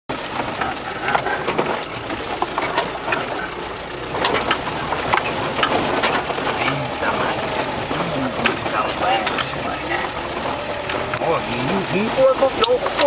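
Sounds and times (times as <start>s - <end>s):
cab knocks and rattles: 0.1s - 11.1s
vehicle engine and road noise: 0.1s - 13.0s.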